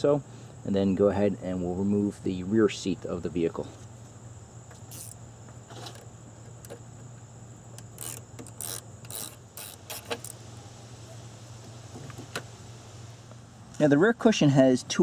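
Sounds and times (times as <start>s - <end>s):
wrench metallic clicks and scrapes: 4.9s - 6.0s, 7.8s - 10.4s.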